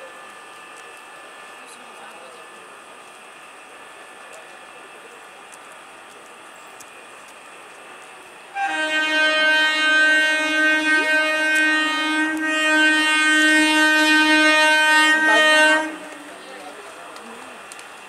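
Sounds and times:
train horn blast: 0:08.5 - 0:16.2.

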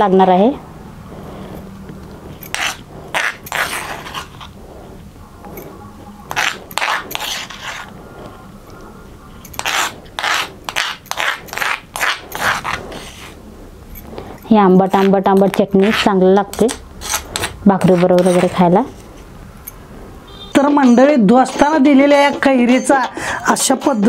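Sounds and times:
metal spoon scraping stone mortar: 0:01.3 - 0:07.9, 0:09.4 - 0:19.8.

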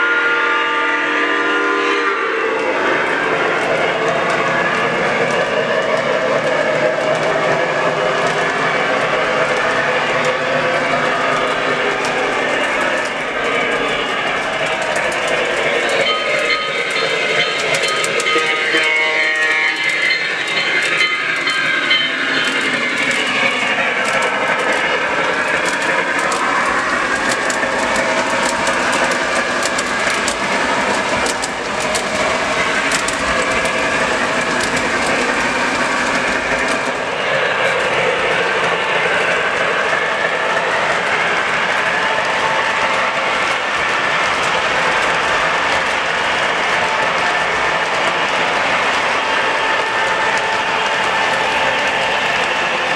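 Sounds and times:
electronic steam whistle: 0:00.0 - 0:04.0, 0:15.9 - 0:22.6
model train wheels clicking: 0:03.0 - 0:52.9.

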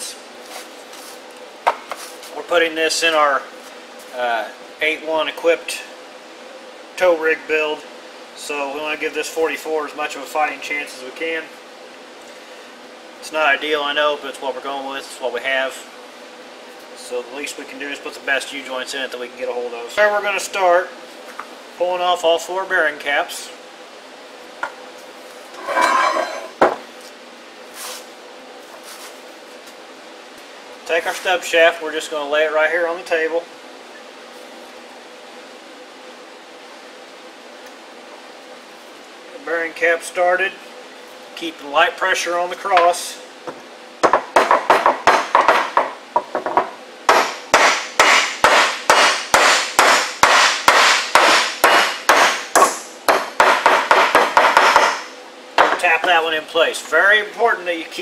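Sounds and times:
hammer striking metal: 0:47.1 - 0:55.8.

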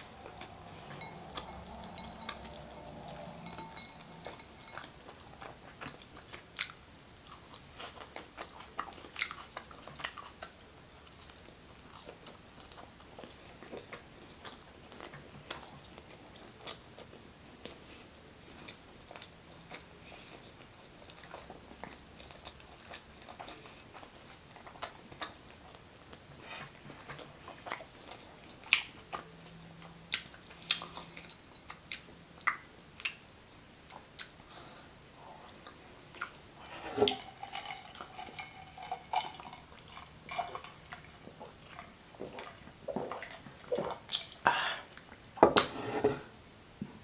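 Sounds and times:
wet chewing: 0:35.5 - 0:44.4.

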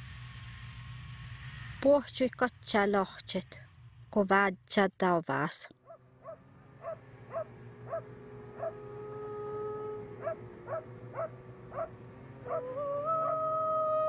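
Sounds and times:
dog barking: 0:05.9 - 0:08.9, 0:10.2 - 0:12.8
low steady drone: 0:06.6 - 0:14.0.

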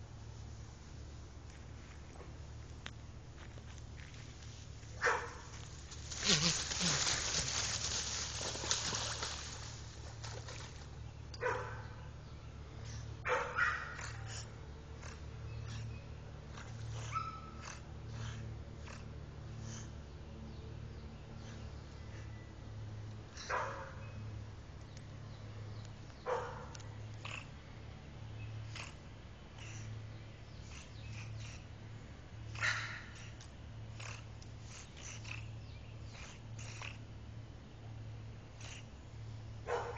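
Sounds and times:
otter pups calling: 0:05.1 - 0:09.7
otters calling: 0:05.5 - 0:09.8, 0:27.1 - 0:27.6, 0:28.4 - 0:37.2.

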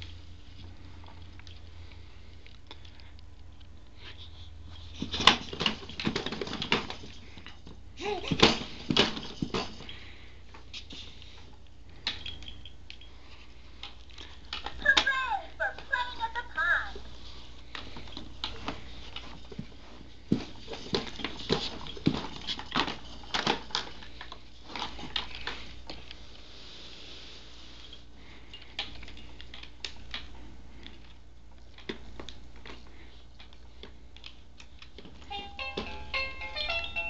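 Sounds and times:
plastic toys clicking and rattling: 0:05.0 - 0:10.0, 0:20.7 - 0:25.7.

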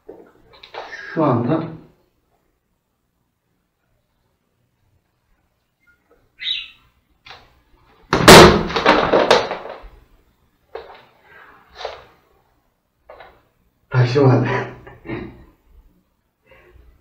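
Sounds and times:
clatter and scuffle of landing: 0:08.1 - 0:10.0.

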